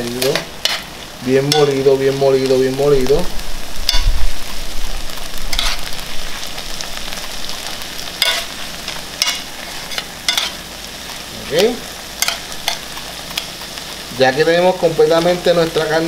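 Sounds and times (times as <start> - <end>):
meat sizzling in a pan: 0.0 - 16.0
metal spoon scraping a pan: 0.2 - 1.8, 3.8 - 4.2, 5.5 - 6.0, 8.2 - 10.6, 12.2 - 13.5.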